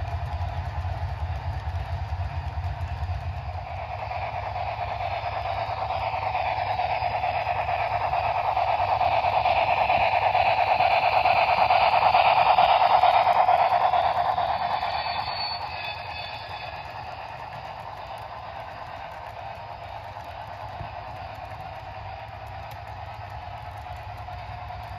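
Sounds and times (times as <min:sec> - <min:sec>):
model train wheels clattering: 0:00.0 - 0:24.9
faint high whine: 0:00.3 - 0:24.9.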